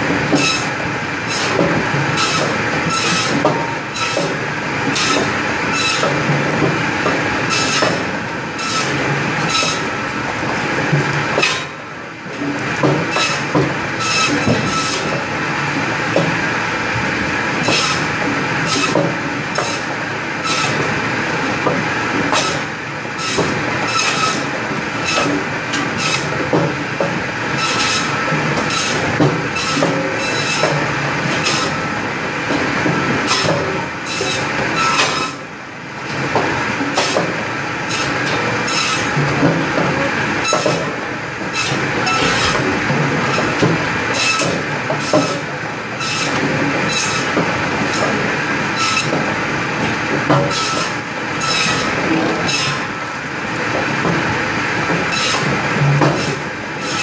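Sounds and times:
conveyor machine running: 0:00.0 - 0:57.0.

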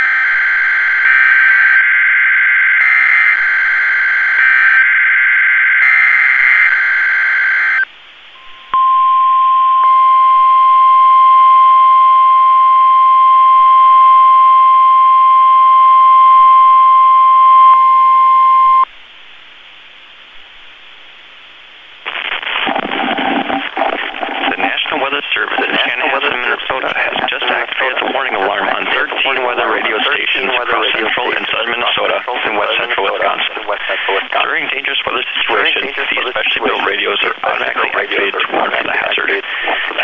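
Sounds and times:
steady warning alarm tone: 0:00.0 - 0:18.8
person speaking: 0:24.5 - 0:40.0.

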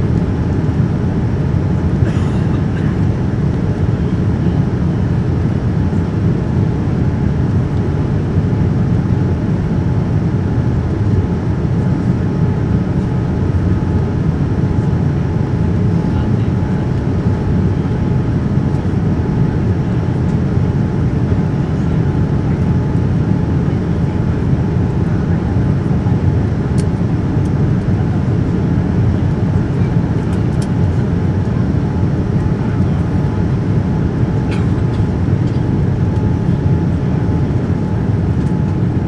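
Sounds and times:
airliner cabin airflow and engines: 0:00.0 - 0:39.0.

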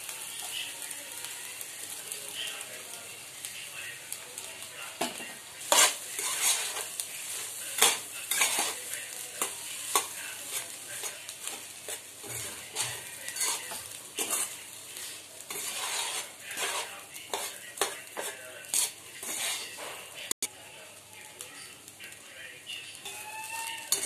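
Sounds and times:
metal spatula scraping a pan: 0:05.0 - 0:20.2, 0:23.0 - 0:24.0.

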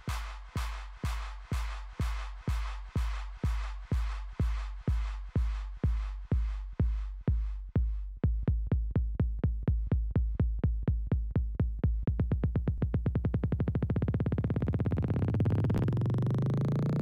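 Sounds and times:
drum machine hits speeding up: 0:00.0 - 0:17.0
rising electronic tone: 0:13.9 - 0:17.0.

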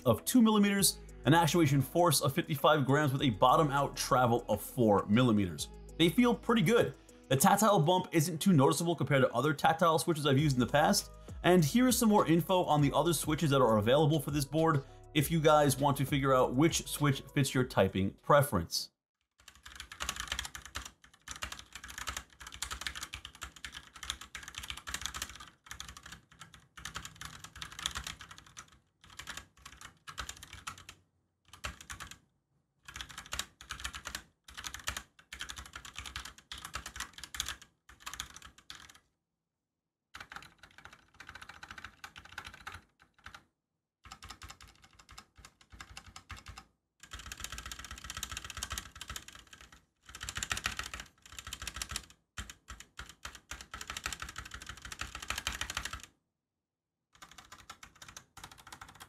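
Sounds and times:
mechanical keyboard typing: 0:19.4 - 0:32.2, 0:32.9 - 0:39.0, 0:40.2 - 0:43.4, 0:44.1 - 0:56.1, 0:57.2 - 0:59.0.

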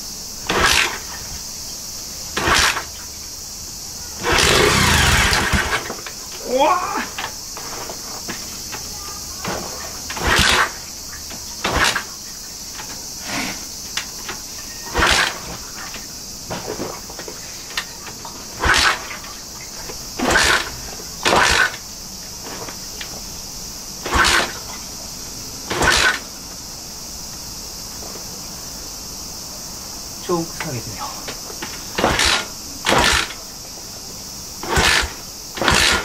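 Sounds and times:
motorcycle engine turning over: 0:00.4 - 0:01.4, 0:02.3 - 0:03.0, 0:04.2 - 0:06.5, 0:09.4 - 0:12.9, 0:14.0 - 0:23.2, 0:24.0 - 0:24.7, 0:25.7 - 0:26.3, 0:31.6 - 0:33.5, 0:34.6 - 0:36.0.

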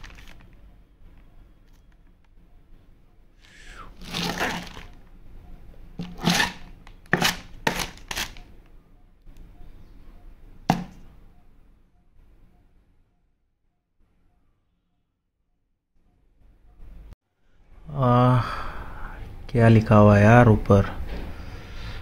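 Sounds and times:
plastic bag ripping: 0:00.0 - 0:00.5, 0:04.0 - 0:05.0, 0:06.0 - 0:08.4.

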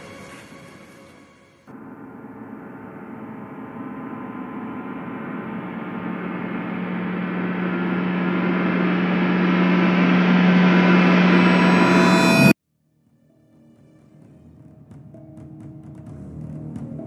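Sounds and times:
droning soundtrack wash: 0:01.7 - 0:12.6
steady low hum: 0:01.7 - 0:12.6.

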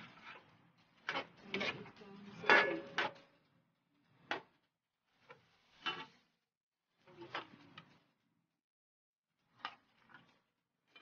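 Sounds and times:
metal spatula scraping wok: 0:00.0 - 0:03.4, 0:05.1 - 0:06.4.

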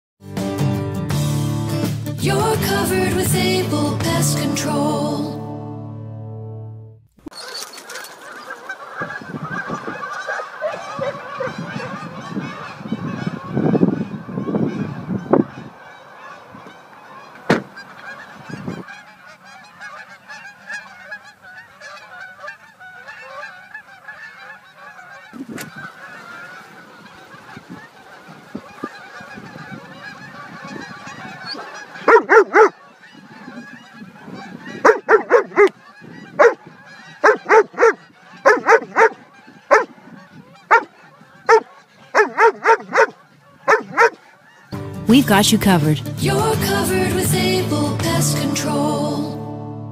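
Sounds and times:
geese honking: 0:07.2 - 0:49.4.

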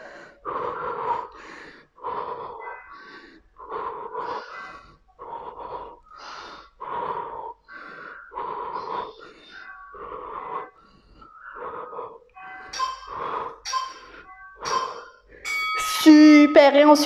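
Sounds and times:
woman breathing hard: 0:00.0 - 0:12.3.

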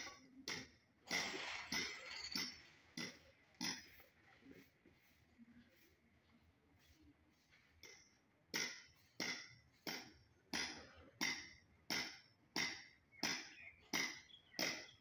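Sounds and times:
sharp ringing knocks: 0:07.8 - 0:15.0.

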